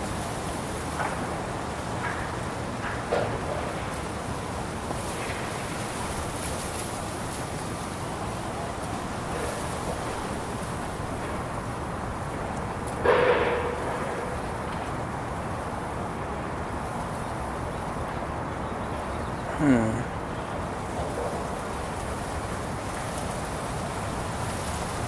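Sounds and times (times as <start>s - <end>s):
wind: 0.0s - 25.0s
street traffic: 0.9s - 25.0s
loud ringing bang: 13.0s - 14.9s.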